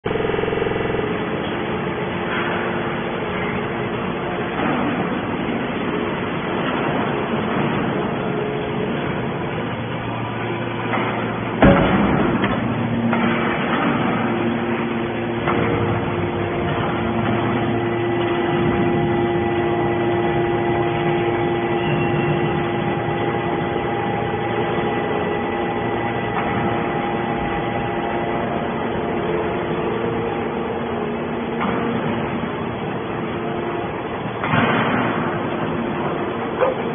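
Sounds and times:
hydraulic machine hum: 0.0 - 36.9
loud metallic bang: 10.4 - 32.6.

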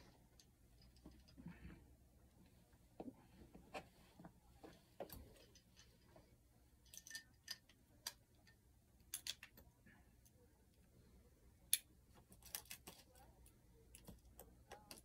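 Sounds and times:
faint irregular clicks and taps: 11.7 - 15.0.

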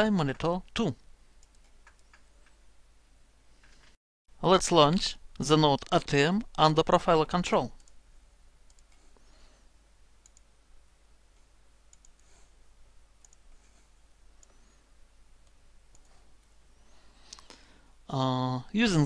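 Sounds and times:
faint room hiss: 0.0 - 19.0
computer mouse clicks: 1.4 - 2.6, 8.7 - 9.3, 10.2 - 10.5, 11.9 - 12.5, 13.2 - 14.8, 15.4 - 16.2.

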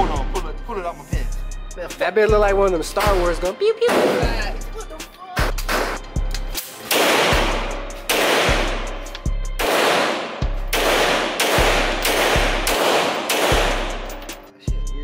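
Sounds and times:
pistol shots echoing indoors: 6.6 - 14.4.

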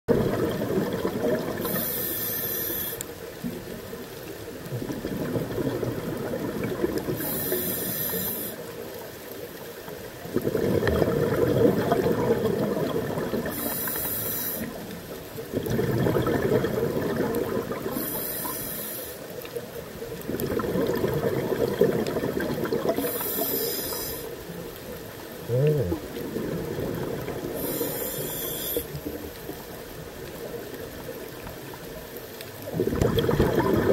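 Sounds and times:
exhaled air bubbling: 0.1 - 9.0, 10.0 - 31.9, 32.5 - 33.9
regulator inhale hiss: 1.6 - 3.3, 7.2 - 8.8, 13.4 - 14.9, 17.9 - 19.4, 23.0 - 24.4, 27.5 - 29.2.

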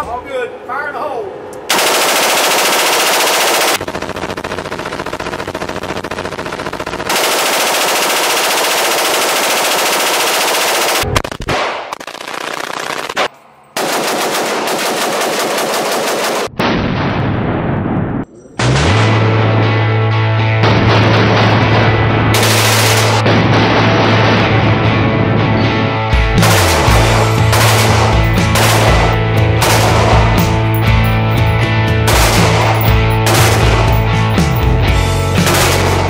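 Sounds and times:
automatic rifle fire: 1.7 - 16.6, 22.4 - 23.3, 26.4 - 30.6, 32.1 - 34.1, 35.4 - 36.0.

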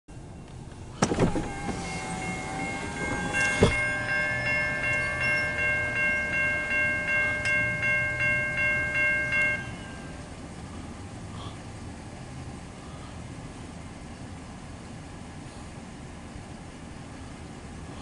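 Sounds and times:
railroad crossing bell ringing: 0.2 - 10.9.

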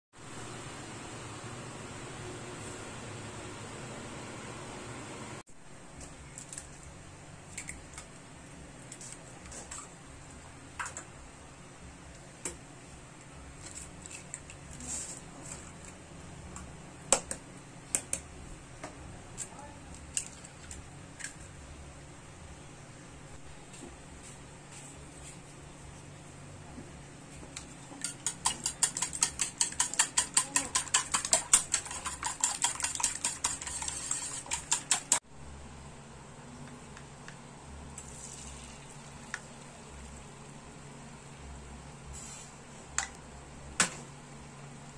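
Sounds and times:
whisk clicking against bowl: 28.0 - 35.2
low steady hum: 35.2 - 44.9.

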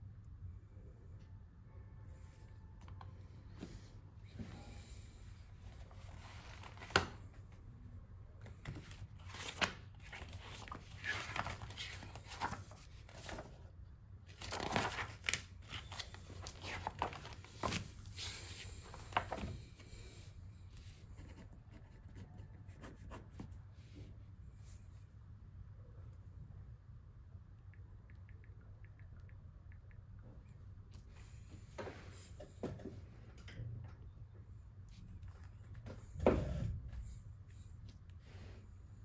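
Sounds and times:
notebook pages flipping: 5.8 - 7.2, 8.5 - 13.6, 14.3 - 19.6.

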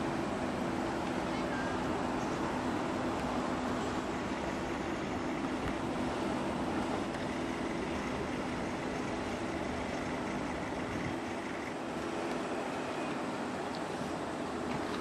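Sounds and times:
distant town traffic: 0.0 - 14.9.

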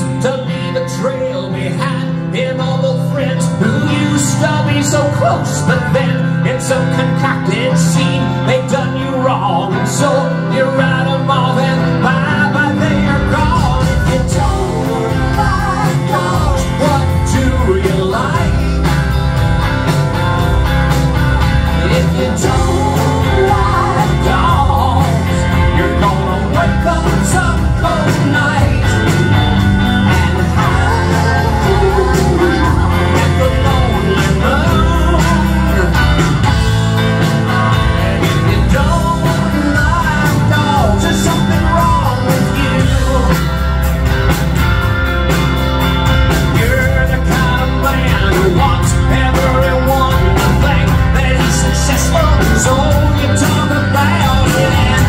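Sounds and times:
live rock band playing: 0.0 - 55.0.

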